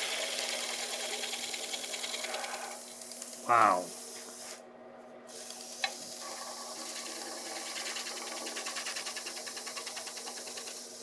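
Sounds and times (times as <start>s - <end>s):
wood lathe motor humming: 0.0s - 2.5s, 5.9s - 11.0s
rhythmic rubbing of turning wood: 6.2s - 11.0s.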